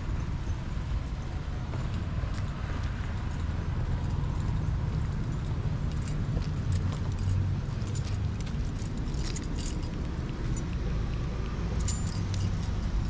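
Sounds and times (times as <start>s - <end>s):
footsteps on brick pavers: 0.0s - 12.8s
light jingling clicks: 0.0s - 13.0s
steady low rumble: 0.0s - 13.0s.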